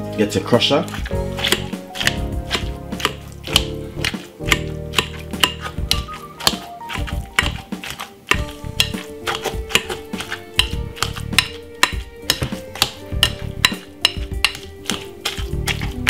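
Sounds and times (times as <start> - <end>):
background music: 0.0 - 16.0
potato masher knocking glass bowl: 0.9 - 10.0, 10.6 - 15.9.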